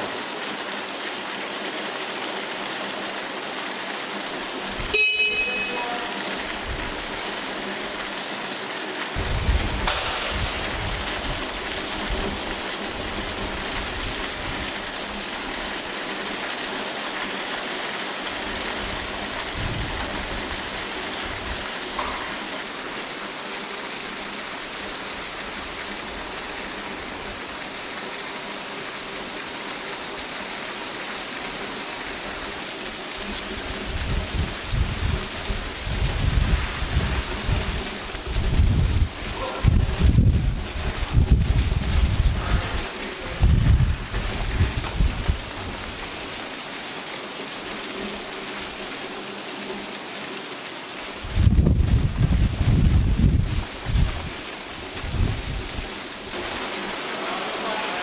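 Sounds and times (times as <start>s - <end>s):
heavy rain on pavement: 0.0s - 58.0s
low thunder rumbling: 9.2s - 14.6s, 33.9s - 45.9s.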